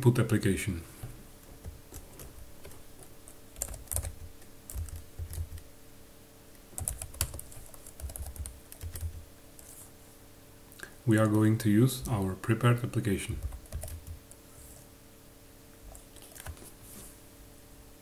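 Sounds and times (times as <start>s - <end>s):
typing on computer keyboard: 1.6s - 5.7s, 6.8s - 9.2s, 13.4s - 14.3s.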